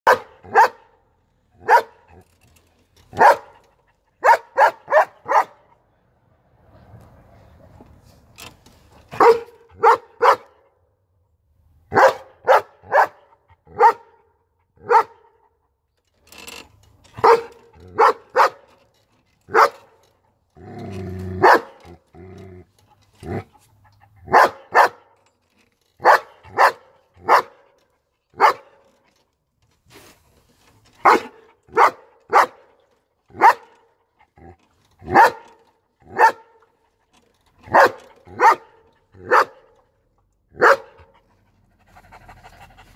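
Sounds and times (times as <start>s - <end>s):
dog barking: 0.0s - 1.0s, 1.6s - 2.1s, 3.1s - 3.6s, 4.2s - 5.7s, 9.2s - 10.6s, 11.9s - 15.4s, 17.2s - 18.6s, 19.5s - 19.9s, 21.4s - 21.8s, 24.2s - 25.1s, 26.0s - 27.7s, 28.4s - 28.8s, 31.0s - 32.7s, 33.4s - 33.8s, 35.1s - 36.6s, 37.7s - 39.7s, 40.6s - 41.1s.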